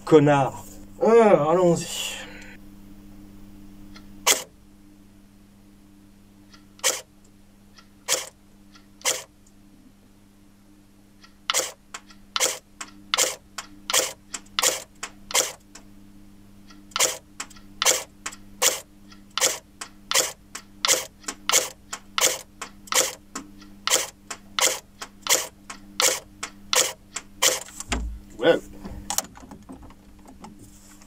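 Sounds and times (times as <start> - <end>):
airsoft gun firing single shots: 4.3 - 4.5, 17.0 - 17.2.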